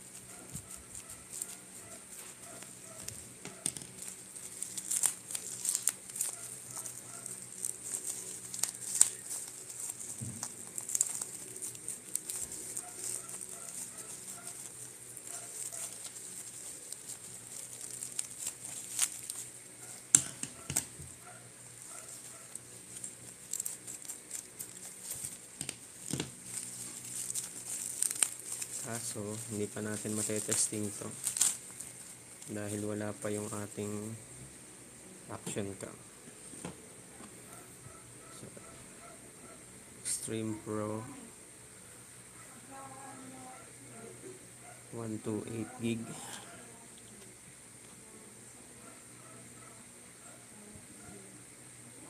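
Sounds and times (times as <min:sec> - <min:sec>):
bubble wrap crinkling: 0:00.0 - 0:34.2.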